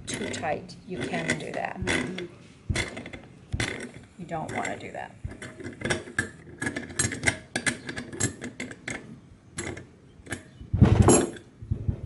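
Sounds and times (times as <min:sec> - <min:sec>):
loud knock: 0:10.8 - 0:11.3.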